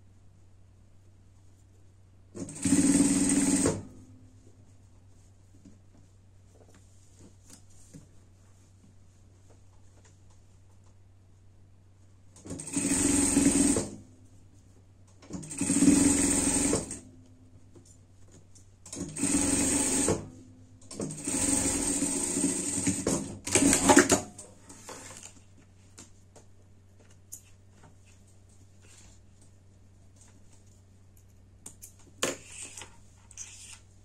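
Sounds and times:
faint low hum: 0.0s - 2.6s, 3.8s - 12.8s
sewing machine stitching: 2.4s - 3.9s, 12.4s - 14.0s, 15.2s - 17.0s, 18.9s - 20.3s, 20.9s - 24.4s.

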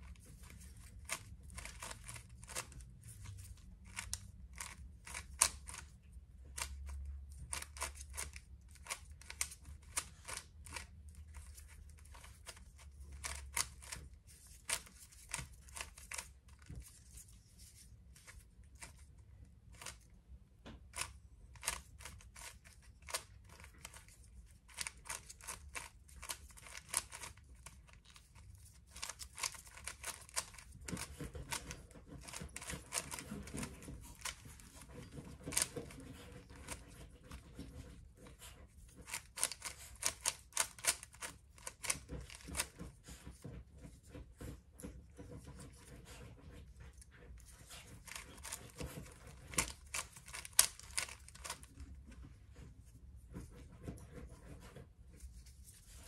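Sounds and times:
puzzle cube plastic clicks: 0.1s - 17.2s, 19.7s - 20.1s, 20.9s - 34.8s, 35.4s - 37.4s, 39.0s - 42.8s, 47.7s - 51.8s.

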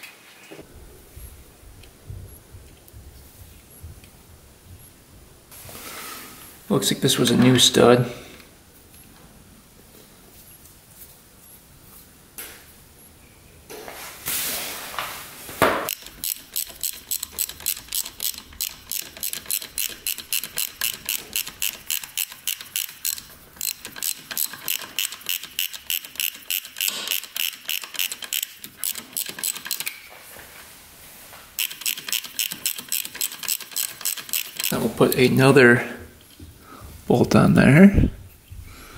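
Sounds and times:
ratchet wrench clicking: 15.9s - 30.0s, 31.6s - 34.8s.

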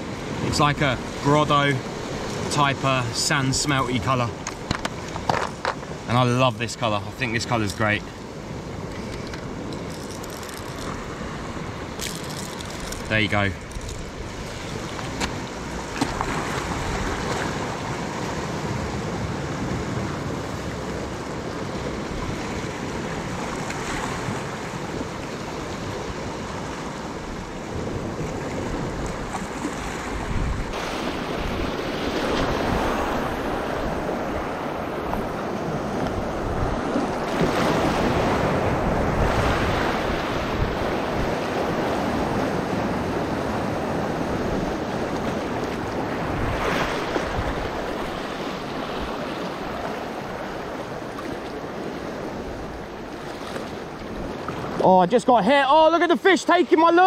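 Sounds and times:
sea waves breaking over rocks: 0.0s - 57.0s
wind buffeting microphone: 27.4s - 50.8s.

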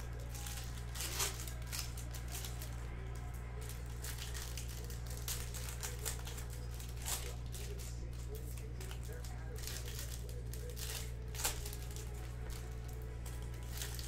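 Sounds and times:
cards rustling: 0.0s - 14.0s
foil wrapper crinkling: 0.0s - 14.0s.

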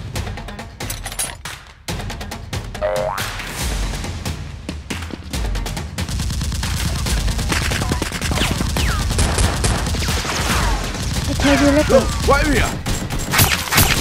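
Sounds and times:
background music: 0.0s - 7.8s, 10.6s - 13.3s
gunfire: 6.2s - 14.0s.

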